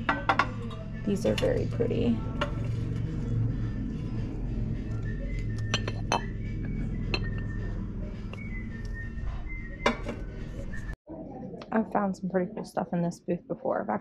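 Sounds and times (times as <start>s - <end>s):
background music: 0.0s - 11.0s
glass clinking on glass: 5.7s - 6.4s, 7.1s - 7.5s.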